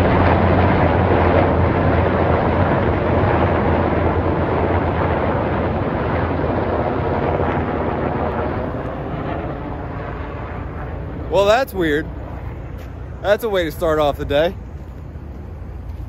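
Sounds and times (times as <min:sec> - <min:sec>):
helicopters flying overhead: 0:00.0 - 0:16.0.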